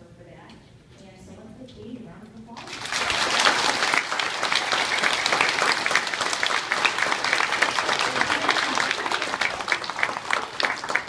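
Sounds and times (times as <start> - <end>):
audience applause: 2.6 - 11.0.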